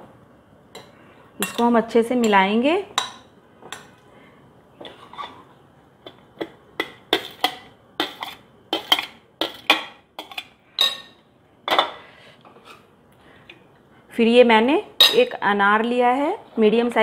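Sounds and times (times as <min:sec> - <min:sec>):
metal spoon clinking on glass bowl: 0:00.8 - 0:02.4.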